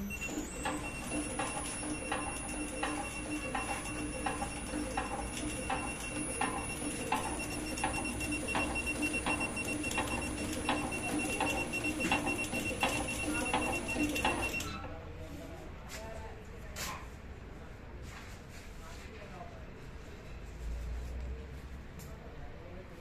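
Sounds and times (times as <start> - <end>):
packaging machine clicking: 0.2 - 14.7.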